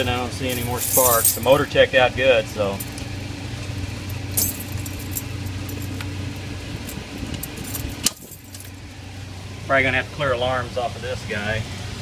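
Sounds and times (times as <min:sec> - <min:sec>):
steady low hum: 0:00.0 - 0:12.0
metal handle clinking and rattling: 0:00.4 - 0:01.7, 0:04.0 - 0:08.8.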